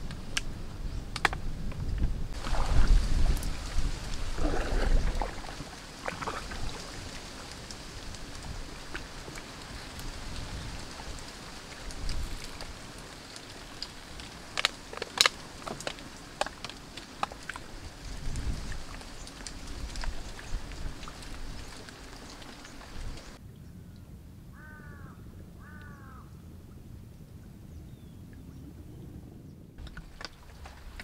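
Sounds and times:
water splashing and lapping: 0:02.3 - 0:23.4, 0:29.8 - 0:31.0.

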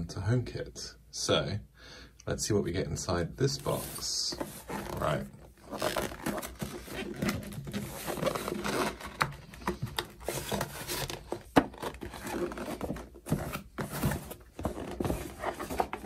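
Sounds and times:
cardboard rustling and scraping: 0:03.5 - 0:16.0.

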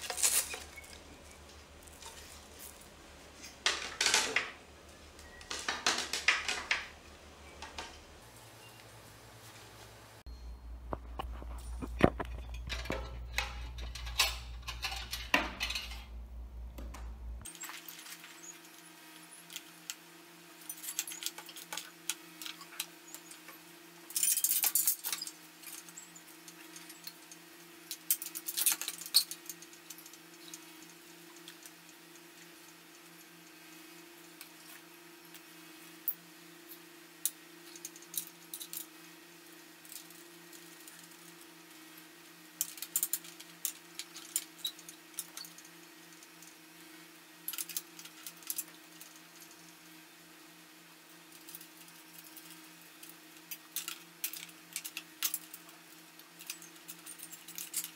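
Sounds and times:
low rumble with handling noise: 0:00.0 - 0:17.5
steady low hum: 0:06.5 - 0:17.5.

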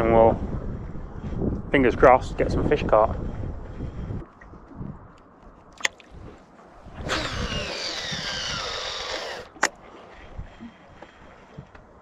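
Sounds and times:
fishing reel spool whizzing: 0:06.8 - 0:10.9
sharp reel click: 0:07.0 - 0:09.7.

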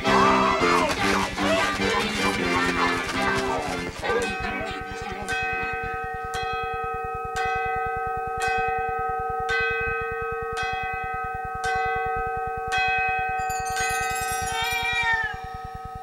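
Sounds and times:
clock bell striking: 0:04.0 - 0:16.0.

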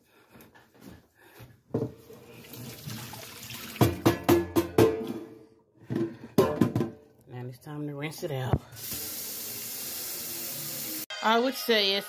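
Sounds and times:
water pouring into sink: 0:02.2 - 0:04.1.

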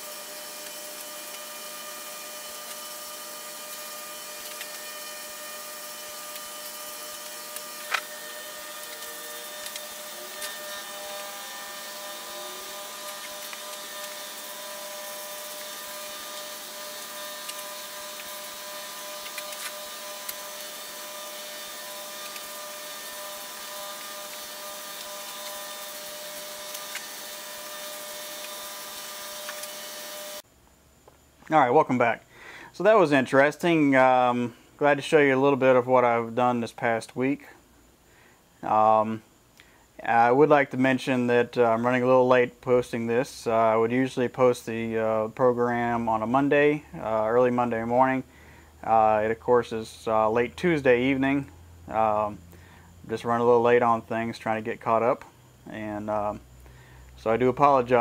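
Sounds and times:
electric fan whirring: 0:00.0 - 0:30.5.

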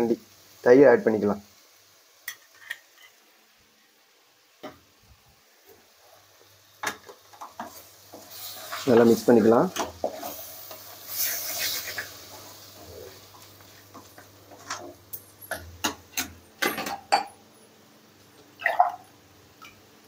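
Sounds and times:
light sizzle: 0:00.0 - 0:20.0
wooden spatula scraping a pan: 0:07.5 - 0:15.0.

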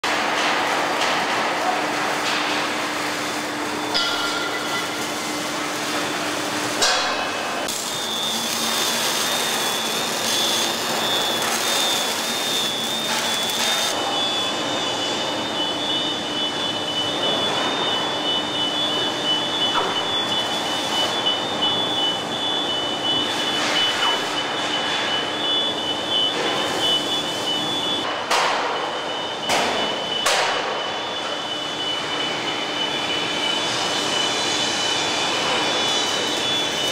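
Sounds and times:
machinery high whine: 0:00.1 - 0:36.9
machinery low hum: 0:00.1 - 0:36.9.

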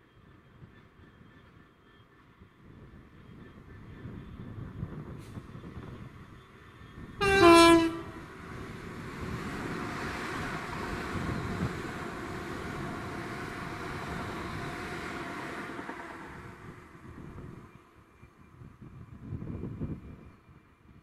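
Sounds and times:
diesel locomotive engine running: 0:00.1 - 0:18.6
two-tone locomotive horn: 0:07.2 - 0:08.3.

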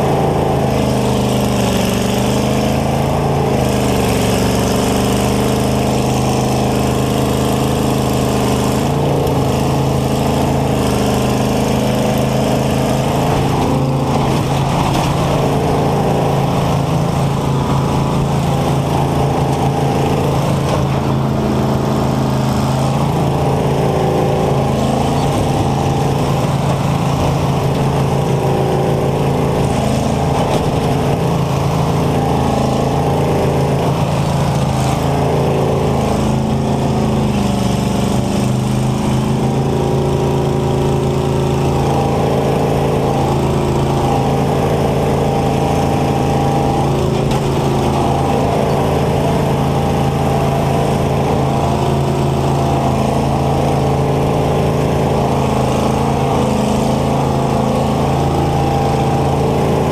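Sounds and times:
combine harvester engine: 0:00.0 - 0:59.9.

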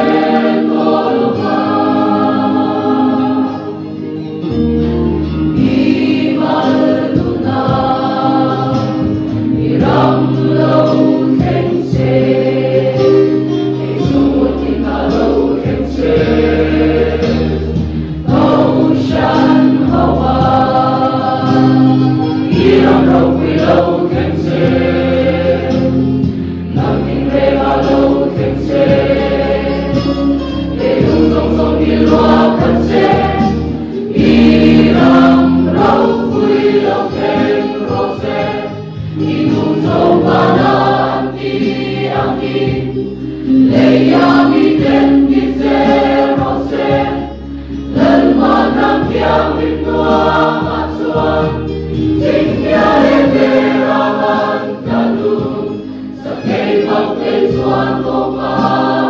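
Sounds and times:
mixed choir singing in harmony: 0:00.0 - 0:59.0
singers breathing: 0:17.7 - 0:18.3.

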